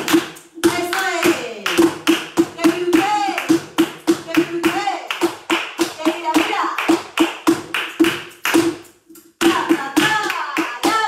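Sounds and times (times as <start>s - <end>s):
dance shoes striking wooden floor: 0.0s - 8.8s, 9.4s - 11.0s.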